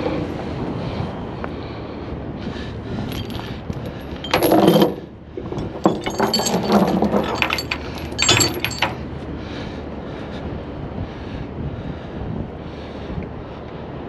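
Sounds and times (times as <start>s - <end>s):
steel chain clanking and rattling: 3.0s - 9.1s.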